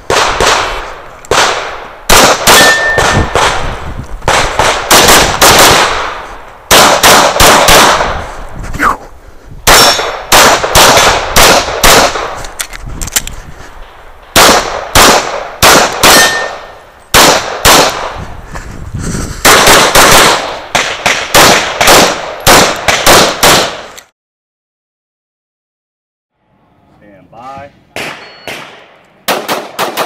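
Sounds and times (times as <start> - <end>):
pistol shots: 0.0 - 8.2, 9.6 - 12.4, 14.2 - 18.2, 19.4 - 24.0, 27.9 - 30.0.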